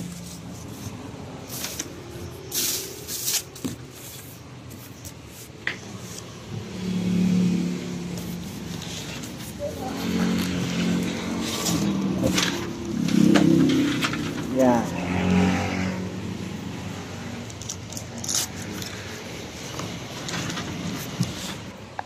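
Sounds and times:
cardboard and plastic rustling: 0.0s - 6.4s, 8.2s - 14.7s, 17.6s - 21.8s.

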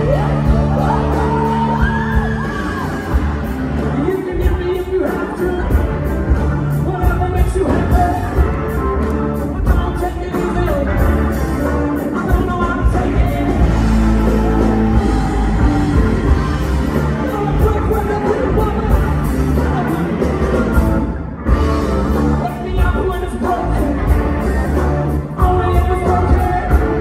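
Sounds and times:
person singing: 0.0s - 6.1s, 22.2s - 27.0s
live rock band playing: 0.0s - 27.0s.

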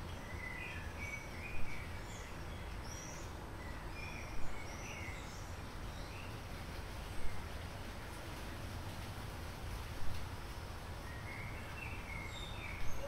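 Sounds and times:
small songbirds chirping: 0.0s - 13.0s.

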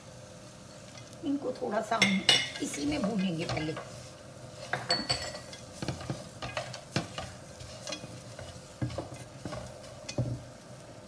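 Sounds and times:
spatula knocking on pot: 8.8s - 10.5s.

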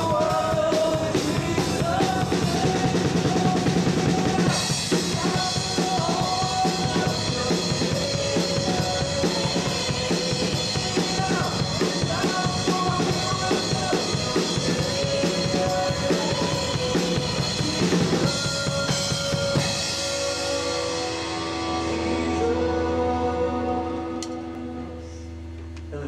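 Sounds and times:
drum kit playing: 0.0s - 24.7s
electric bass guitar: 0.0s - 26.0s
sustained chord tones: 1.1s - 26.0s.

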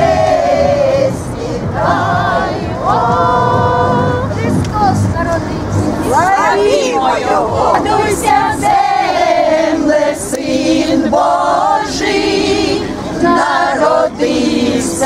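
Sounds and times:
women singing in unison: 0.0s - 15.0s.

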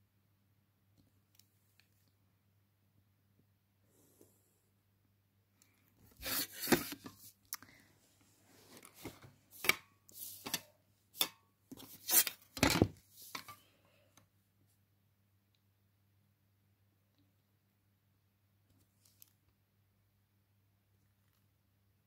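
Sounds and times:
plastic rulers scraping on paper: 6.2s - 7.1s, 9.5s - 12.5s.

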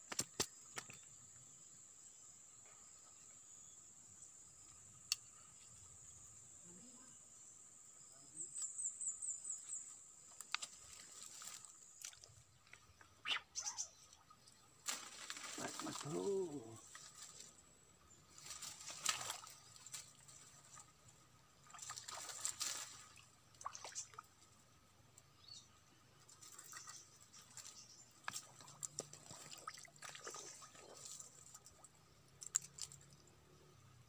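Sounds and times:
water splashing and dribbling: 18.4s - 24.6s, 26.3s - 33.4s.

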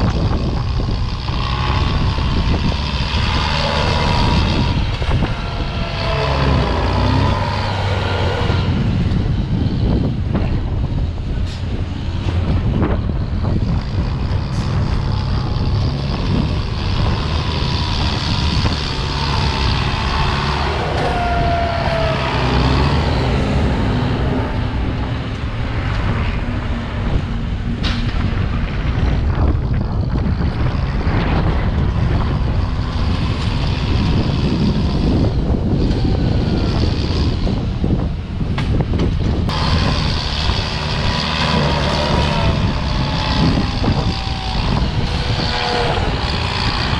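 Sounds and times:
tractor diesel engine under load: 0.0s - 46.9s
thin whining tone: 39.5s - 46.9s.

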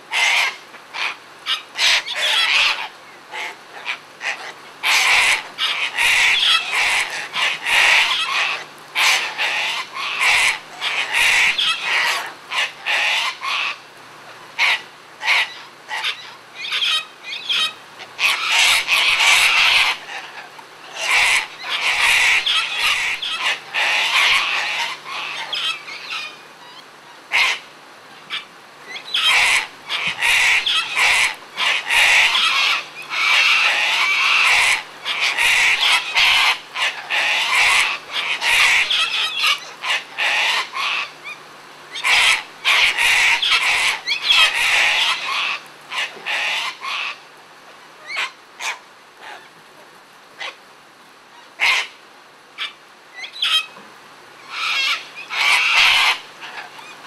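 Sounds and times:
cockatoos screeching: 16.7s - 20.0s, 29.2s - 41.1s, 54.5s - 56.7s.

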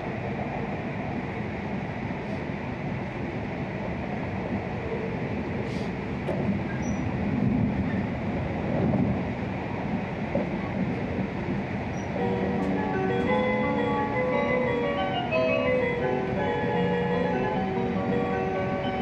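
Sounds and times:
train cabin low rumble: 0.0s - 19.0s
announcement chime melody: 12.2s - 19.0s.

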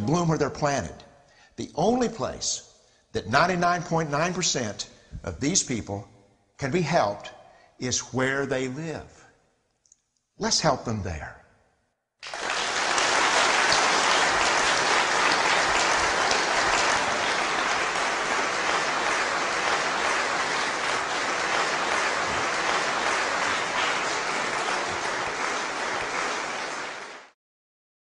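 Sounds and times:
audience applauding: 12.2s - 27.4s.

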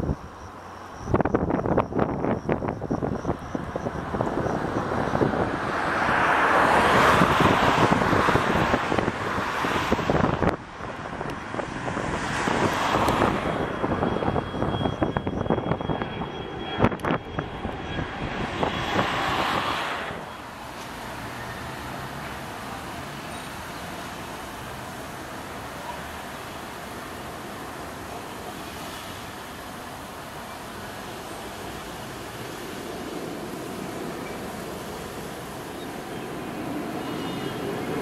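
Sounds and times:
jet engines at takeoff: 0.0s - 38.0s.

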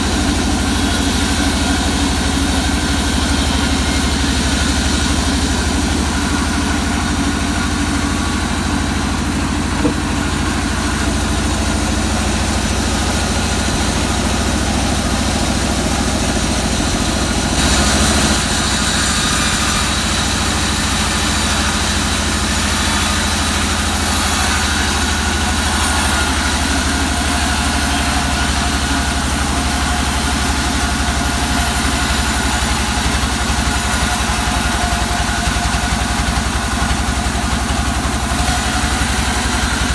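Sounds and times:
band saw motor humming: 0.0s - 39.9s
saw blade cutting log hiss: 17.2s - 39.9s.

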